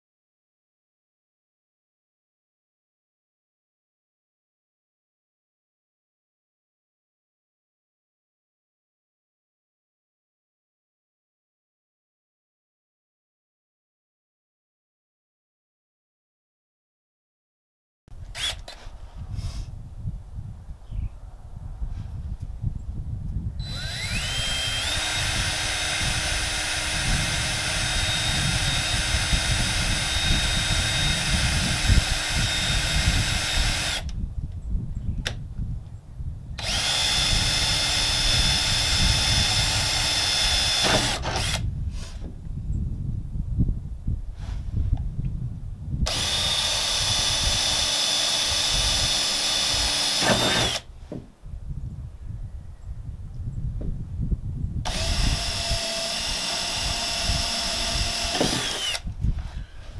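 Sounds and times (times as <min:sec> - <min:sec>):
cordless drill whining: 0:18.3 - 0:18.9, 0:23.6 - 0:34.2, 0:36.6 - 0:41.7, 0:46.1 - 0:50.9, 0:54.8 - 0:59.9.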